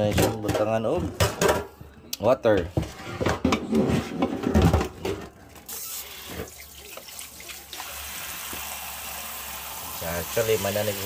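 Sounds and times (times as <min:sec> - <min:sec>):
water running into metal pot: 0:05.7 - 0:11.0.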